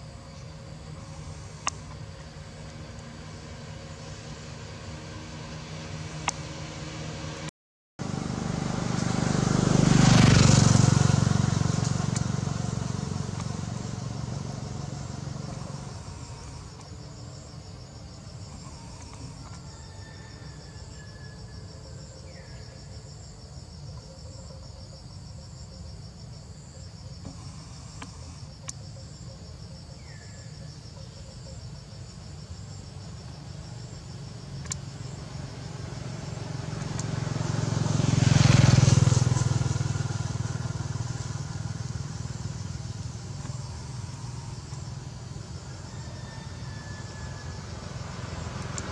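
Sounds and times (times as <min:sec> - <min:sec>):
insects droning: 0:00.0 - 0:48.9
motorbike passing: 0:00.1 - 0:23.0, 0:32.9 - 0:48.9.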